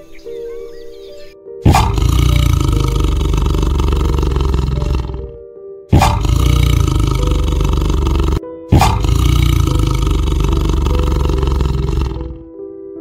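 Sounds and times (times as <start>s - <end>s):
background music: 0.0s - 13.0s
large animal roaring: 1.6s - 12.5s.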